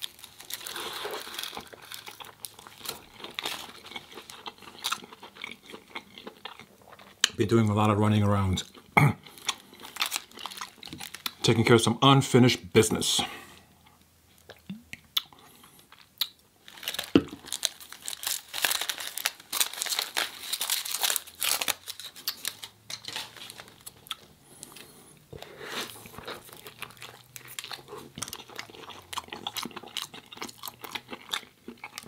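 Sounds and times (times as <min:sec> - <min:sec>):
food wrapper crinkling: 0:00.0 - 0:07.2, 0:09.4 - 0:11.6, 0:15.9 - 0:32.0
chewing: 0:00.9 - 0:07.3, 0:23.8 - 0:32.0.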